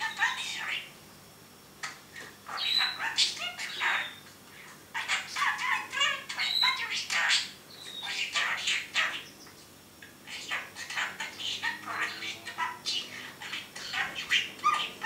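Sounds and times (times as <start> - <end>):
budgerigar chattering: 0.0 - 0.9, 2.5 - 4.2, 5.0 - 9.3, 10.3 - 15.0.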